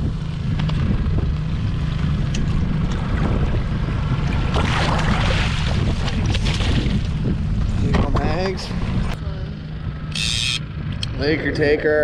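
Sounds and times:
wind buffeting microphone: 0.0s - 9.2s
outboard motor hum: 0.0s - 12.0s
waves against hull: 1.7s - 9.2s.

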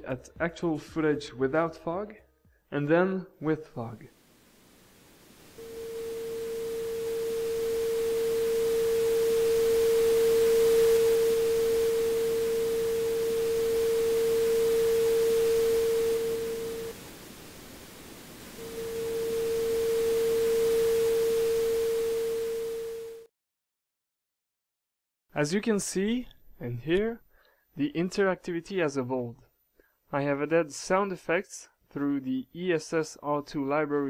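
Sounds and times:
pink noise hiss: 3.8s - 23.1s
pure sine tone: 4.0s - 23.3s.

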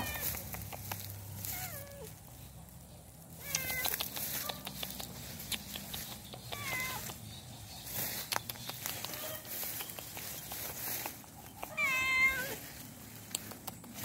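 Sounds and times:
crackles and rustles: 0.0s - 14.0s
cat meowing: 6.6s - 7.0s, 11.7s - 12.6s.

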